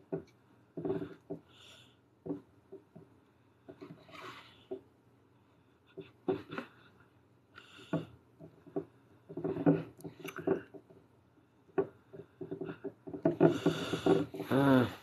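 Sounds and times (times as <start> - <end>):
glass bottle shifting on wood: 0.8 - 1.4, 8.0 - 10.9, 11.8 - 14.5.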